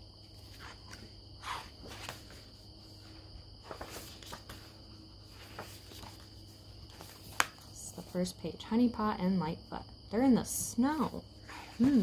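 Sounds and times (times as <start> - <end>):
crickets trilling: 0.0 - 12.0
book rustling and tapping: 0.4 - 2.6, 3.6 - 8.0.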